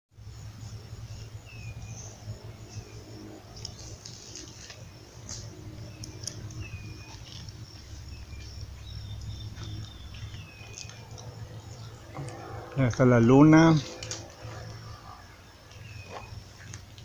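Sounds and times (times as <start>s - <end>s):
low steady rumble: 0.2s - 17.0s
bird chirps: 5.4s - 16.9s.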